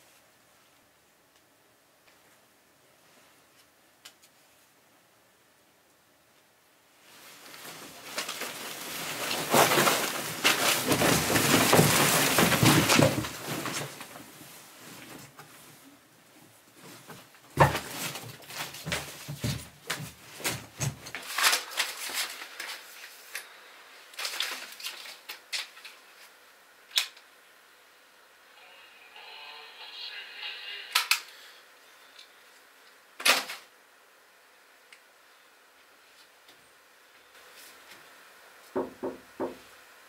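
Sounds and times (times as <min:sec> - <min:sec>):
paper rustling and crashing: 0:07.4 - 0:14.4, 0:17.0 - 0:23.4, 0:24.1 - 0:26.1, 0:33.2 - 0:33.7
foot kicking cardboard boxes: 0:09.2 - 0:14.1, 0:17.5 - 0:21.3.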